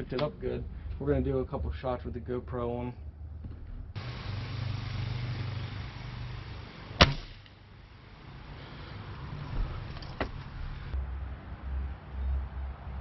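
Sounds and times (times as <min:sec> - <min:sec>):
air rifle shot: 0:07.0 - 0:07.5.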